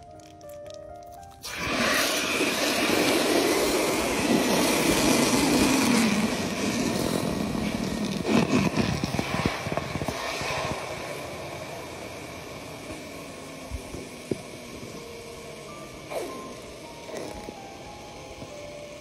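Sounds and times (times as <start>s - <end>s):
liquid pouring into water: 0.0s - 10.9s.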